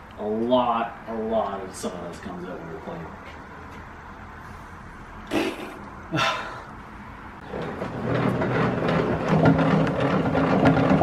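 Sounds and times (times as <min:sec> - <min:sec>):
shop vac running: 0:07.4 - 0:11.0
thickness planer running: 0:07.4 - 0:11.0.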